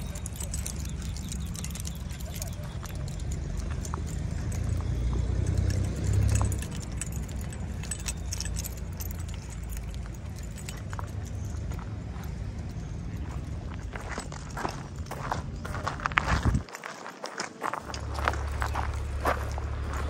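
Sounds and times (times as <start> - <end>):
keys jangling: 0.0 - 20.0
low rumble: 17.9 - 20.0.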